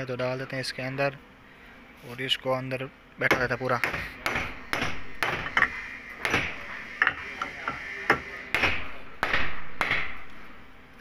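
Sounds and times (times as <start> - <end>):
hammer knocking on metal: 3.3 - 10.2.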